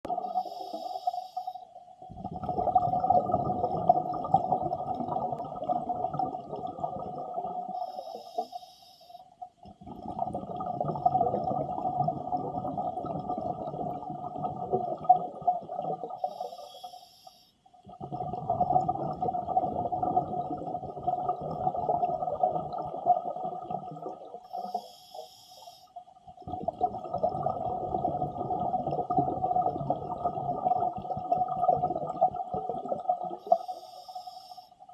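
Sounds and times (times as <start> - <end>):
regulator breathing inhale hiss: 0.3 - 1.8, 7.7 - 9.3, 16.2 - 17.6, 24.5 - 26.0, 33.4 - 34.8
bubbling exhale underwater: 2.1 - 8.5, 9.6 - 16.7, 17.8 - 25.2, 26.3 - 34.4.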